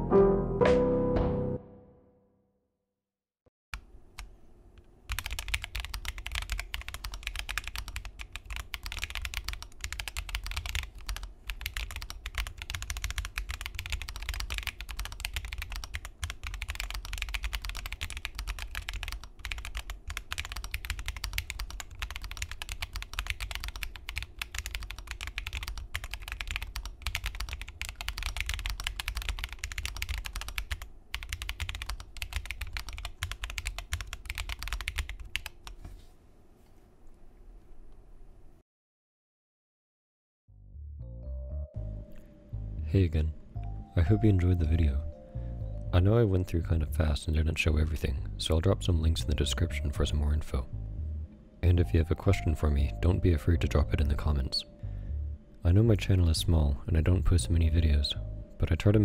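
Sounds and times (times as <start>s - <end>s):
fast typing on mechanical keyboard: 5.1s - 35.8s.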